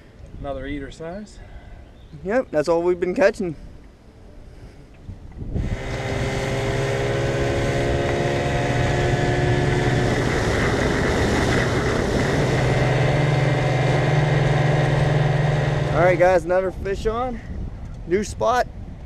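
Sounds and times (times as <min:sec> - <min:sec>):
wind and water hiss: 0:02.2 - 0:19.0
outboard motor droning: 0:05.6 - 0:16.2.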